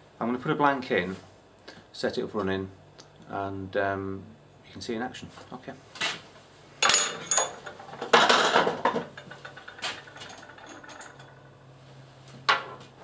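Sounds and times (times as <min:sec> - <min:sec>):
metal parts clinking: 0:06.8 - 0:08.2, 0:09.2 - 0:11.5
metal clattering rattle: 0:06.8 - 0:11.6.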